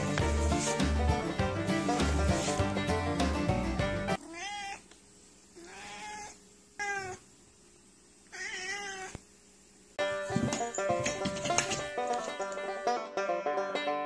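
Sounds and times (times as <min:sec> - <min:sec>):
background music: 0:00.0 - 0:04.2
cat meowing: 0:04.2 - 0:04.9, 0:05.6 - 0:07.3, 0:08.3 - 0:09.2.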